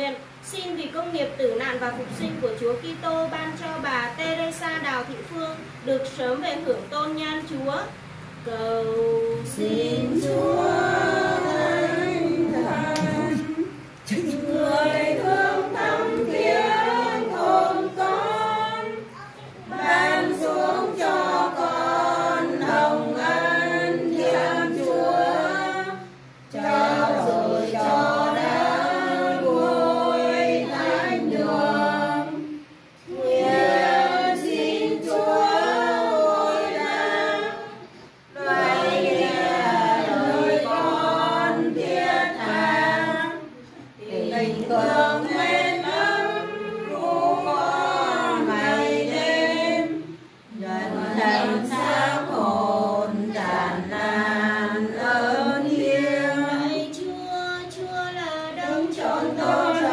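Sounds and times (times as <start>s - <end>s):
group singing a hymn unaccompanied: 6.0s - 59.9s.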